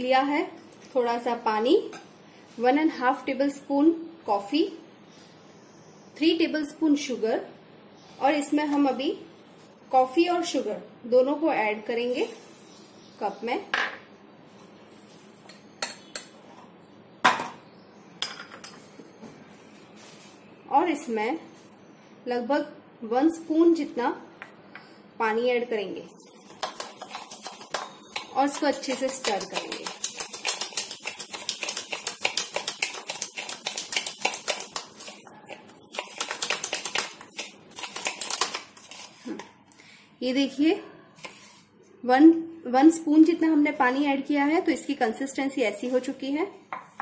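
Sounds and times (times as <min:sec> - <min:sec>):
spoon clinking against a mug: 0:15.5 - 0:16.4.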